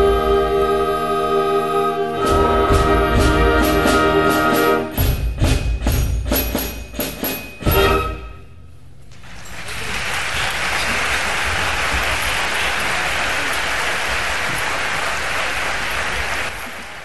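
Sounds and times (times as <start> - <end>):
audience applauding: 9.2 - 17.0.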